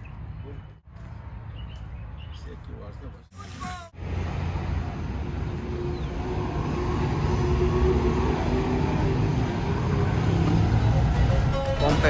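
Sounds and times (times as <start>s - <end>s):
traffic rumbling past: 0.0s - 12.0s.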